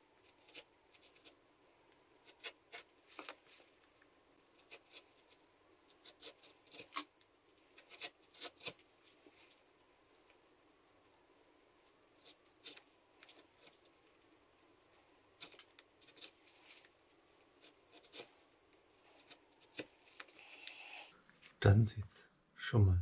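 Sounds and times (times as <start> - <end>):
carving tool scraping wood: 0.0 - 1.4, 2.2 - 3.7, 4.5 - 7.1, 7.7 - 9.3, 12.2 - 14.0, 15.4 - 21.1.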